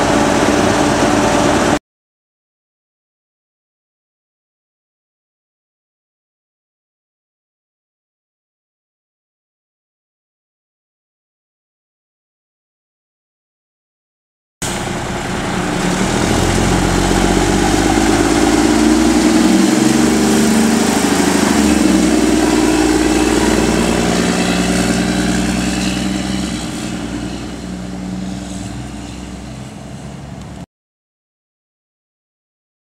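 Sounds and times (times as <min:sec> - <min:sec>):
truck diesel engine driving past: 0:00.0 - 0:01.8, 0:14.6 - 0:30.6.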